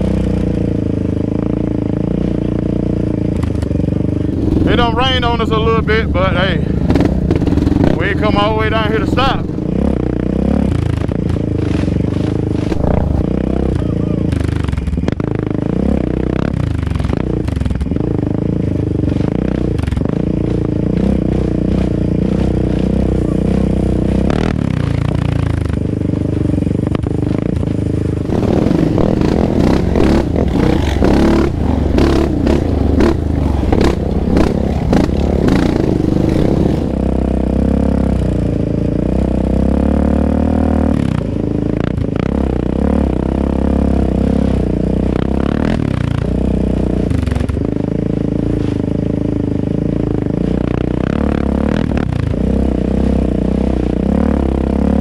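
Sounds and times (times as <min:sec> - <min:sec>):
quad bike engine revving: 0:00.0 - 0:55.0
rattling and scraping over bumps: 0:03.3 - 0:09.8, 0:10.8 - 0:13.4, 0:24.0 - 0:37.0.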